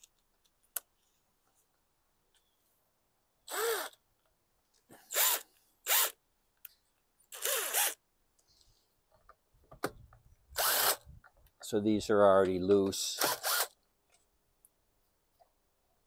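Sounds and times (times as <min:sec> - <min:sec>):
cordless drill whining: 0:03.5 - 0:04.0, 0:05.0 - 0:06.2, 0:07.3 - 0:08.0, 0:10.5 - 0:11.1, 0:13.2 - 0:13.8.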